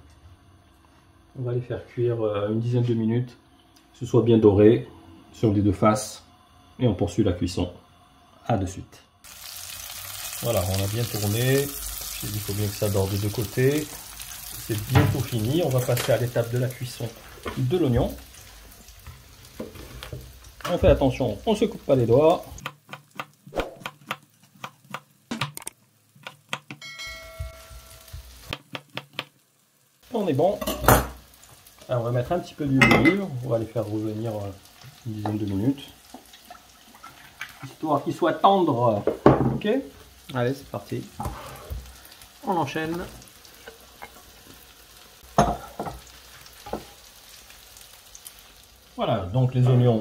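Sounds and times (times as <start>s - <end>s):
faint steady hiss: 0.0s - 50.0s
frying pan knocking on stovetop: 26.3s - 29.3s
bell-like ringing tone: 26.8s - 28.2s.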